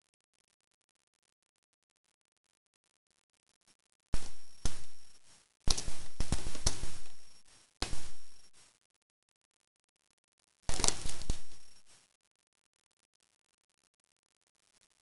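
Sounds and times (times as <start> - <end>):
wrapping paper crinkling: 10.7 - 11.9.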